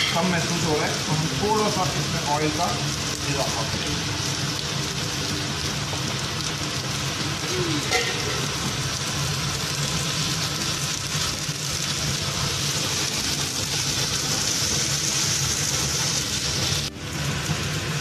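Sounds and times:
onions sizzling in oil: 0:00.0 - 0:18.0.

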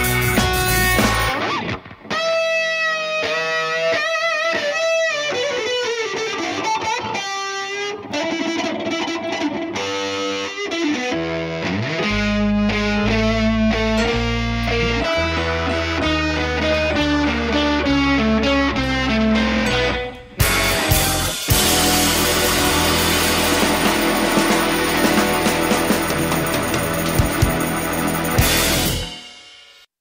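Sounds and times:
band playing song: 0:00.0 - 0:01.7, 0:12.1 - 0:29.6
electric guitar bent notes: 0:00.0 - 0:29.4.

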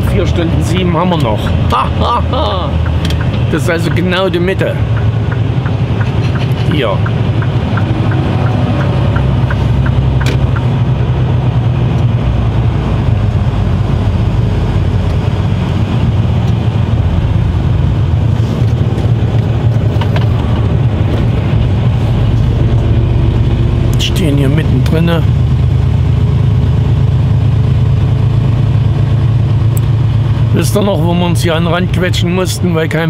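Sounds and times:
turn indicator ticking: 0:00.0 - 0:11.1
truck diesel engine and road noise: 0:00.0 - 0:33.0.

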